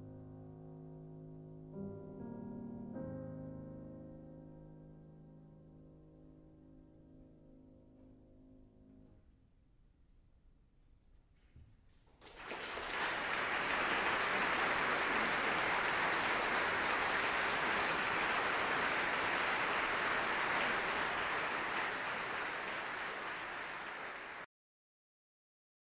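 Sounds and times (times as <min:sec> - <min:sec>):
audience applause: 0:12.1 - 0:24.5.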